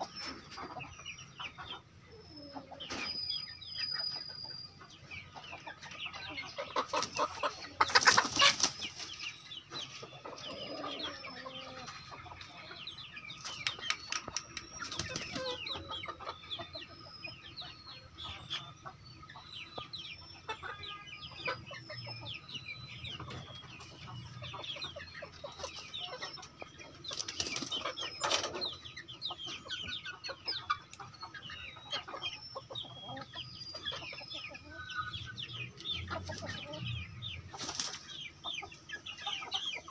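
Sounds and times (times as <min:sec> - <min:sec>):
chickens clucking: 0:00.0 - 0:39.9
wings flapping: 0:37.6 - 0:38.0.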